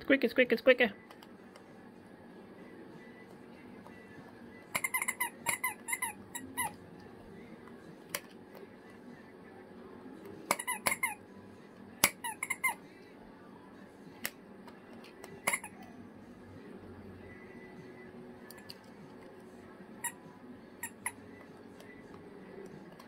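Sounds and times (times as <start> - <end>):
squeaky toy squeaks: 4.8 - 6.8, 10.5 - 11.2, 12.0 - 12.8, 15.4 - 15.8, 20.8 - 21.2.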